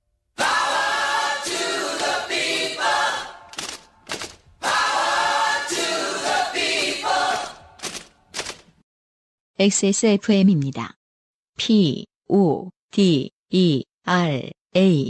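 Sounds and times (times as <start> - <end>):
a cappella vocal jingle: 0.4 - 3.5, 4.6 - 7.7.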